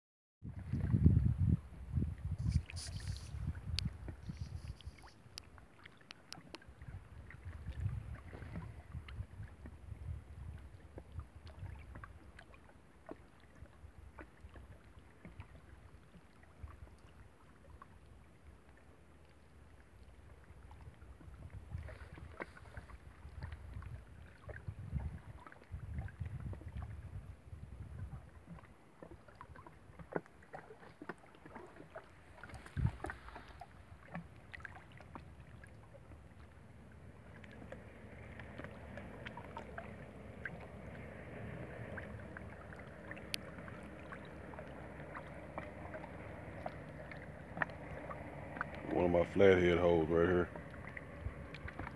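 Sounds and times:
wind buffeting microphone: 0:00.4 - 0:05.2, 0:06.8 - 0:12.0, 0:20.7 - 0:28.5, 0:32.4 - 0:35.1
small waves lapping on rocks: 0:00.5 - 0:51.9.

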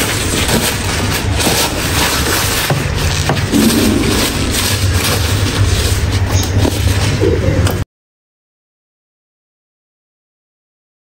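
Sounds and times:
paper towel crinkling: 0:00.0 - 0:07.2.

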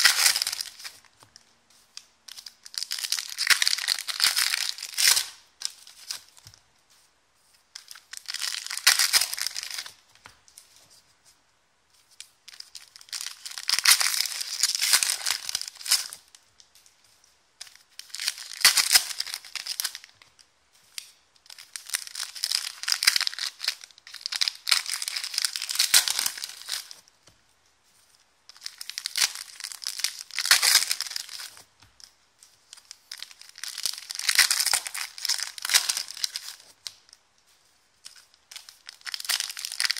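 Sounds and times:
foil wrappers crinkling: 0:00.0 - 0:06.6, 0:07.8 - 0:10.0, 0:20.9 - 0:27.0, 0:28.0 - 0:39.9.

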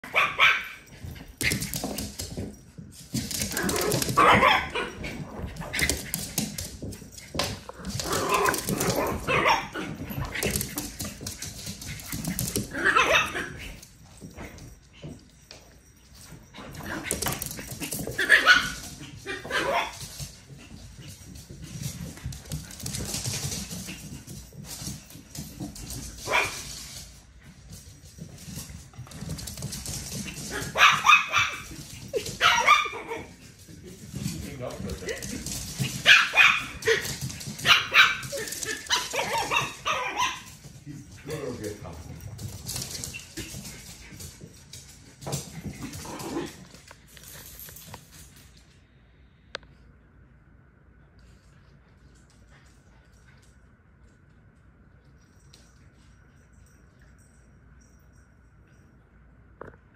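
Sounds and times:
small dogs barking: 0:00.0 - 0:00.9, 0:03.8 - 0:05.2, 0:08.2 - 0:09.9, 0:12.7 - 0:13.6, 0:18.2 - 0:20.0, 0:30.5 - 0:31.8, 0:32.4 - 0:33.3, 0:36.0 - 0:37.0, 0:37.6 - 0:40.6
small dog yelp: 0:00.1 - 0:00.8, 0:12.8 - 0:13.6, 0:30.6 - 0:33.3, 0:37.6 - 0:40.5
claws scrabbling on hardwood floor: 0:00.8 - 0:15.3, 0:16.6 - 0:48.4.

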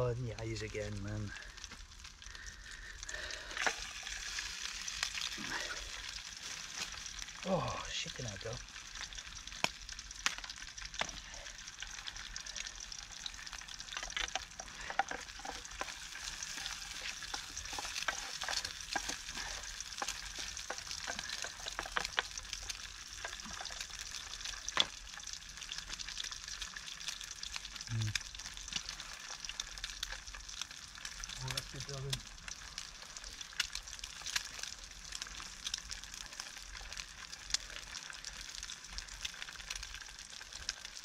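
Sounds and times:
egg sizzling in a frying pan: 0:00.0 - 0:41.0
spatula clicking and scraping in pan: 0:08.8 - 0:31.4.

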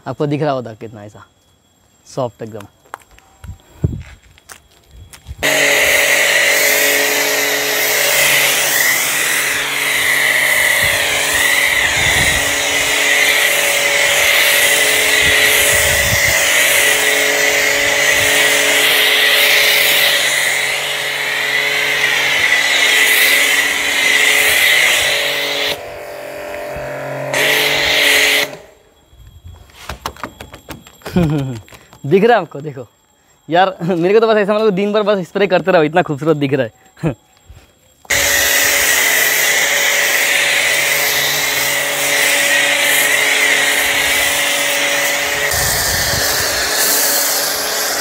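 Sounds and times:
pressure washer spray hiss: 0:05.4 - 0:25.8, 0:27.3 - 0:28.6, 0:38.1 - 0:48.0
pressure washer motor hum: 0:05.4 - 0:28.7, 0:38.1 - 0:48.0.

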